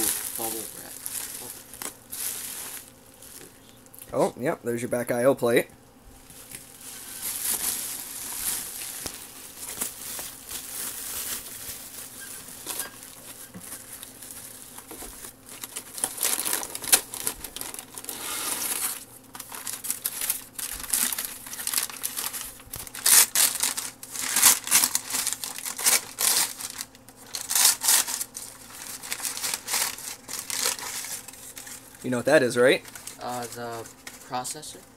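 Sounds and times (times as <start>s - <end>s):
packing paper crinkling: 0.0s - 3.8s, 6.2s - 34.9s
bubble wrap rustling: 0.0s - 4.0s, 6.2s - 34.9s.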